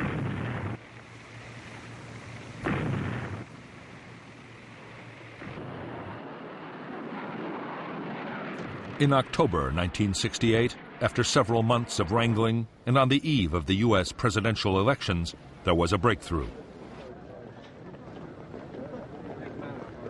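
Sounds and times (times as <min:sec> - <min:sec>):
steady rushing noise: 0:00.0 - 0:17.1
ship guns firing: 0:02.6 - 0:03.5.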